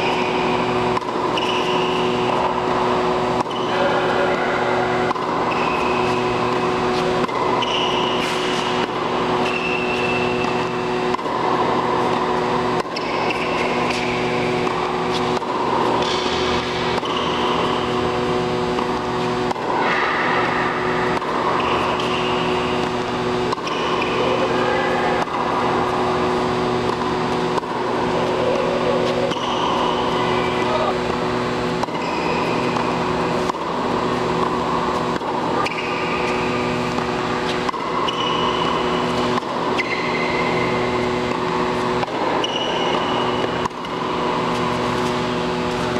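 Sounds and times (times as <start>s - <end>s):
steady mechanical hum: 0.0s - 45.9s
shoe squeaks on court: 1.3s - 2.2s, 5.5s - 11.0s, 31.9s - 32.9s, 35.6s - 40.9s, 42.4s - 43.6s
racket striking tennis ball: 4.6s - 24.4s, 31.8s - 45.9s.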